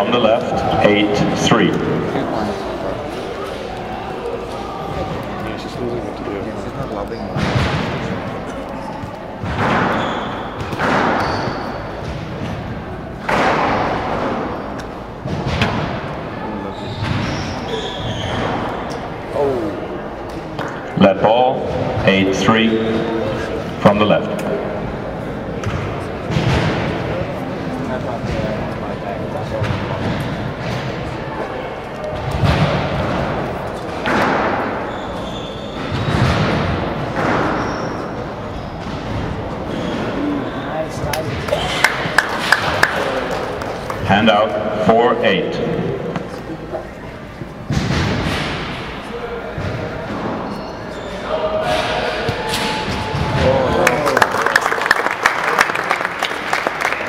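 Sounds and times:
squash ball hits echoing: 7.3 - 40.4, 47.6 - 50.6, 51.6 - 54.1
squash ball thuds: 9.0 - 16.2
shoes squeaking on wooden floor: 9.8 - 12.1, 16.6 - 18.8, 34.7 - 36.3, 37.5 - 40.8.

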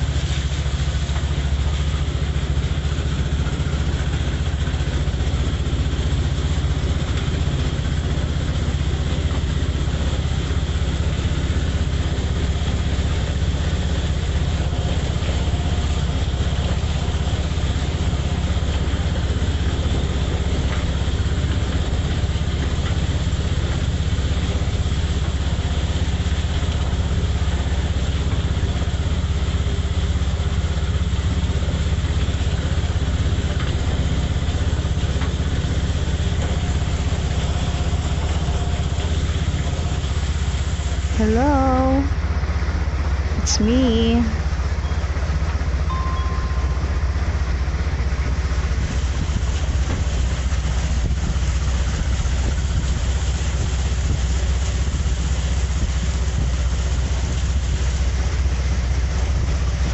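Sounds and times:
motorcycle engine running: 0.0 - 42.8.

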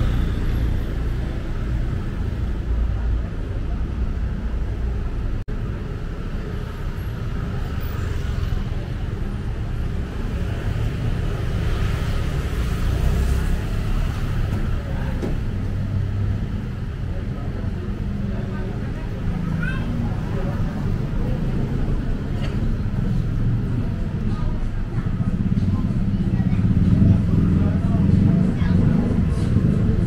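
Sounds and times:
motorbikes and cars passing: 0.0 - 30.0.

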